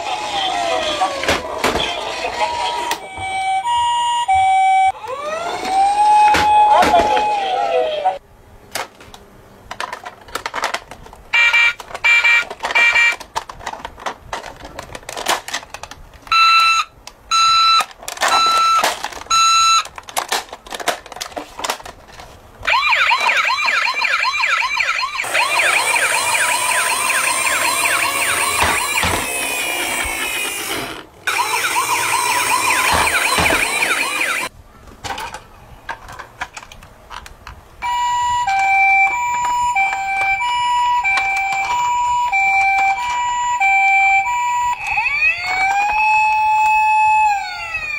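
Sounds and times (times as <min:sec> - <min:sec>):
toy ambulance sirens: 0:00.0 - 0:08.2, 0:11.3 - 0:13.2, 0:16.3 - 0:20.3, 0:22.6 - 0:34.5, 0:37.8 - 0:47.9
plastic toys clicking and rattling: 0:08.8 - 0:24.0, 0:25.2 - 0:43.4.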